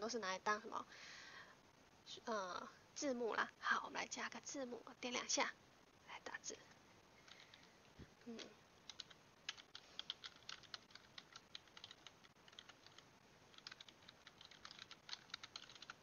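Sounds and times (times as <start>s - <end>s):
keyboard typing: 7.2s - 7.7s, 8.3s - 16.0s.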